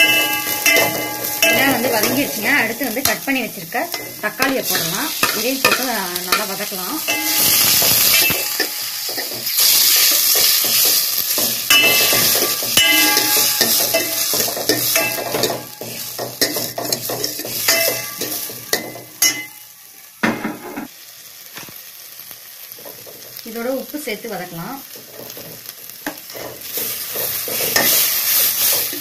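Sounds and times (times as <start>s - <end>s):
vegetables sizzling in oil: 0.0s - 29.0s
ladle scraping metal pot: 7.1s - 19.5s.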